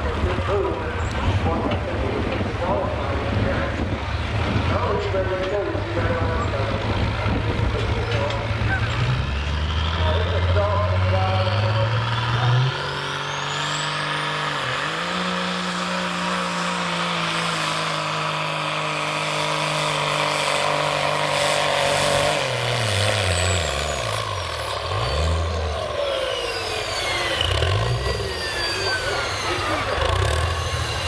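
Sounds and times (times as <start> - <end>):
truck diesel engine under load: 0.0 - 31.0
high whines gliding downward: 21.8 - 31.0.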